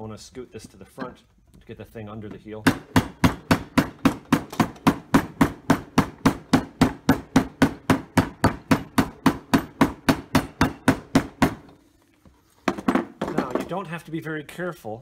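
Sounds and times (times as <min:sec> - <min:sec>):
hammer striking shoe heel: 0:02.6 - 0:11.7.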